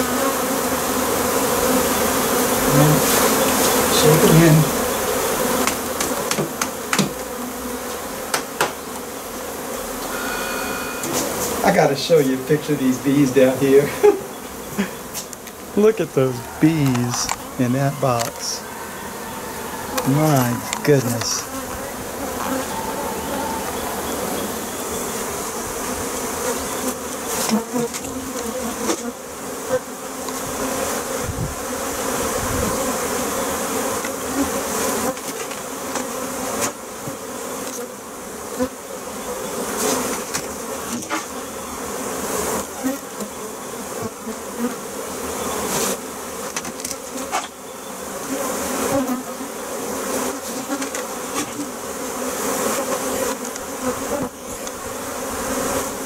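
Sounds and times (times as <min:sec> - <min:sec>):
bees buzzing: 0:00.0 - 0:56.0
knocks on wooden hive frames: 0:05.3 - 0:09.0, 0:46.4 - 0:47.6.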